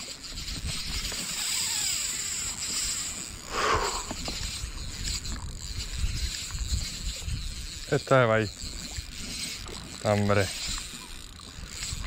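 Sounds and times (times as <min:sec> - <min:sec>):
spinning reel being cranked: 0:00.0 - 0:12.0
wind rumble on microphone: 0:03.4 - 0:09.8, 0:11.5 - 0:12.0.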